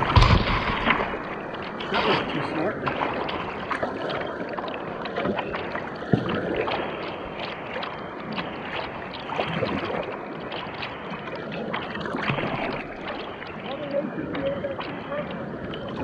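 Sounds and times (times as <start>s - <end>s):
sharp knock: 0.0s - 1.2s
paddle dipping and dripping: 0.0s - 16.0s
rushing water: 0.0s - 16.0s.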